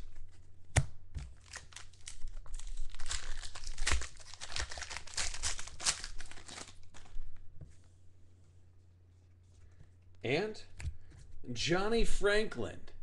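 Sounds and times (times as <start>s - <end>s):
foil wrapper tearing and crinkling: 1.3s - 7.2s.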